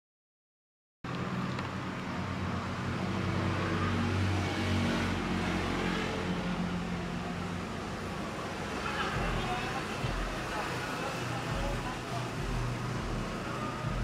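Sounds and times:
street noise: 0:01.0 - 0:14.0
low engine hum: 0:01.1 - 0:14.0.

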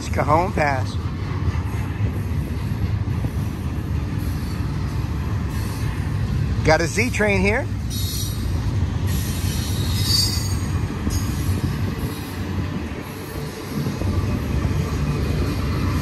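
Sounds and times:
train wheels rumbling on rails: 0:00.0 - 0:16.0
high wheel squeal: 0:07.0 - 0:13.9.

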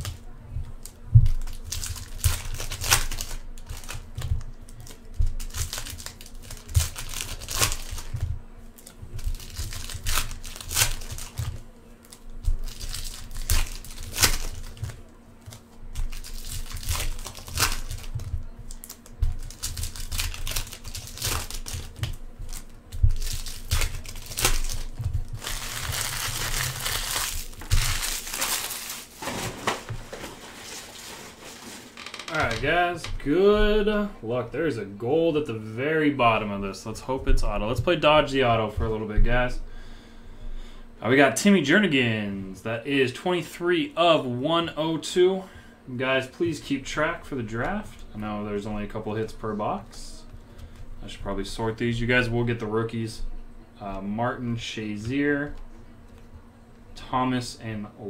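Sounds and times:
foil wrappers tearing and crinkling: 0:00.8 - 0:32.6.

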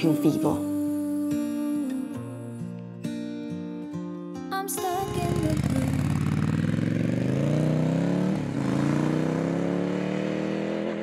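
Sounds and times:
motorcycle engine accelerating: 0:05.0 - 0:11.0.

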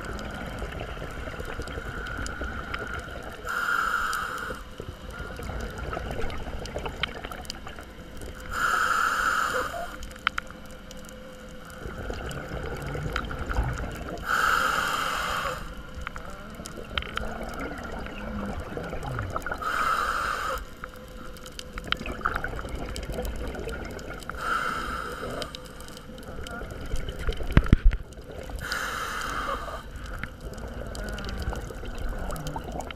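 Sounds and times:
bubbling exhaled air: 0:00.0 - 0:10.2, 0:11.6 - 0:32.9
hissing regulator inhalations: 0:01.8 - 0:04.8, 0:08.5 - 0:10.1, 0:14.2 - 0:15.9, 0:19.5 - 0:21.0, 0:24.3 - 0:26.0, 0:28.6 - 0:30.3.

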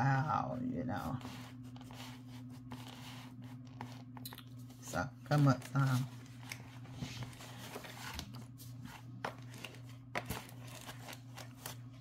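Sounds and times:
steady low hum: 0:00.0 - 0:12.0
packaging rustling: 0:05.4 - 0:12.0.

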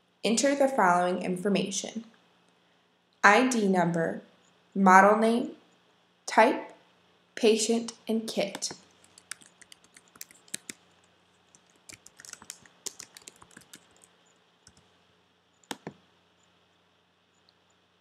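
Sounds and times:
loud keyboard clicks: 0:08.5 - 0:10.8, 0:11.5 - 0:14.9, 0:15.6 - 0:16.0
typing on computer keyboard: 0:08.5 - 0:10.8, 0:11.5 - 0:14.9, 0:15.6 - 0:16.0.

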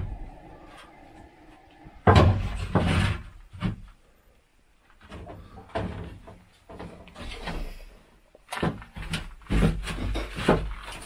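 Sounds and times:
objects knocking and clunking: 0:02.0 - 0:04.1, 0:04.8 - 0:11.0.

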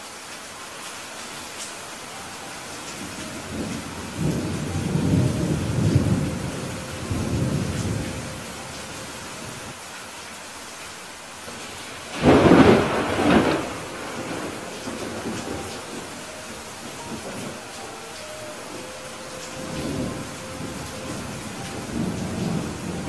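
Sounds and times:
steady rain: 0:00.0 - 0:23.0
thunder rumbling and cracking: 0:11.6 - 0:16.2, 0:16.9 - 0:17.6.

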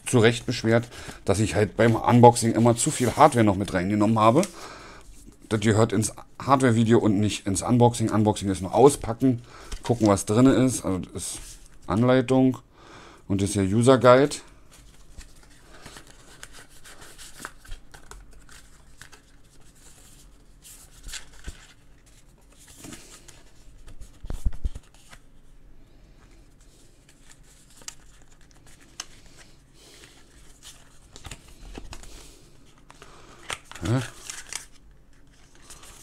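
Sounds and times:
paper and cardboard rustling: 0:00.2 - 0:04.5, 0:14.7 - 0:25.3, 0:32.7 - 0:36.0.

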